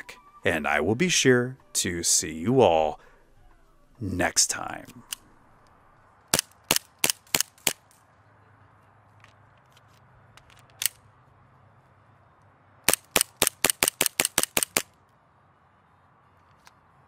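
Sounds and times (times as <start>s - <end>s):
airsoft pistol shots: 6.3s - 7.8s, 12.9s - 14.9s.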